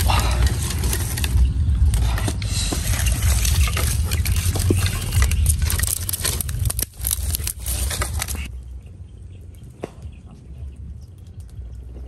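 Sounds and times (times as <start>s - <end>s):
dry sticks clicking and snapping: 0.0s - 8.5s
steady low rumble: 0.0s - 12.0s.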